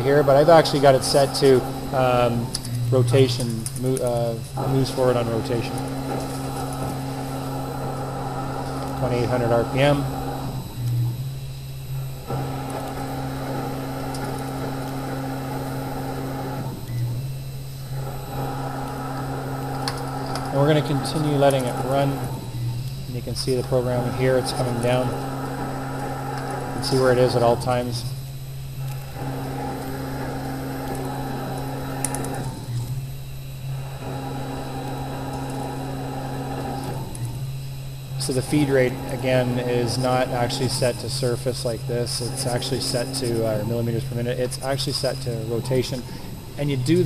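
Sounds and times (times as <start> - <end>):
lathe machine hum: 0.0 - 47.0
metal cutting noise: 0.0 - 47.0.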